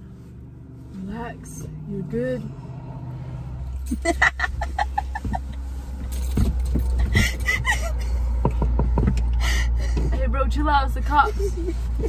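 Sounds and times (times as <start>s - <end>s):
car interior hum: 0.0s - 12.0s
woman laughing: 3.9s - 5.6s, 7.0s - 8.1s, 11.2s - 12.0s.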